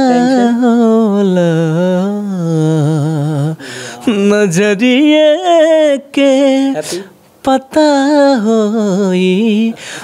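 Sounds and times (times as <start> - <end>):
man singing with vibrato: 0.0 - 10.0
quick breath: 9.8 - 10.0.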